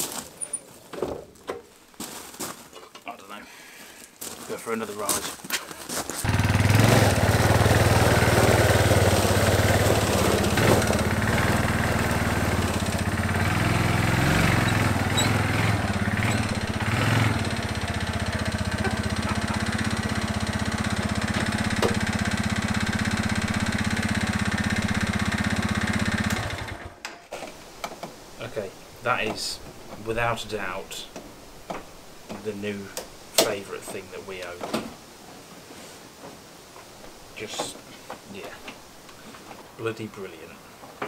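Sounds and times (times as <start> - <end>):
quad engine running: 6.2 - 26.9.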